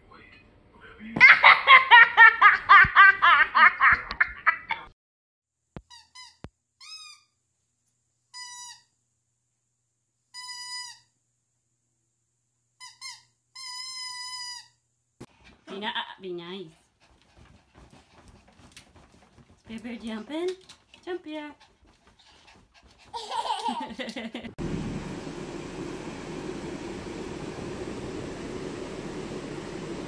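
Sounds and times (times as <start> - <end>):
child giggling: 1.2 - 4.9, 23.1 - 24.6.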